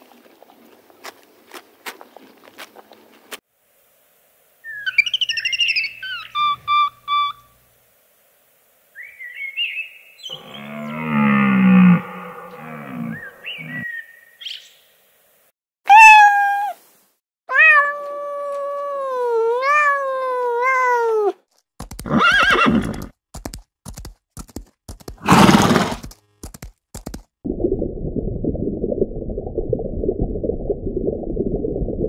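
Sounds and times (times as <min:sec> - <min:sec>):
hoofbeats: 0:21.8 - 0:27.2
horse whinnying: 0:22.0 - 0:23.1, 0:25.2 - 0:26.1
horse breathy snorts: 0:25.2 - 0:26.1.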